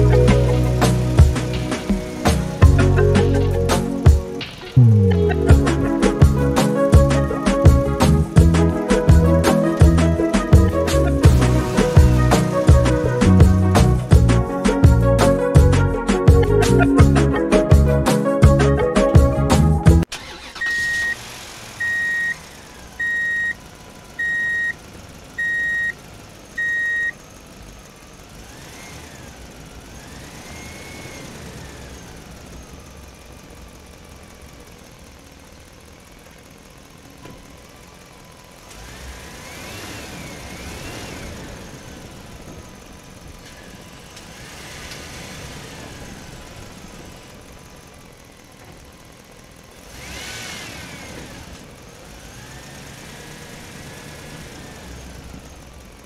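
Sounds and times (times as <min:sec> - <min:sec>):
vehicle engine running: 0:00.0 - 0:56.0
truck reversing beeper: 0:20.1 - 0:27.4.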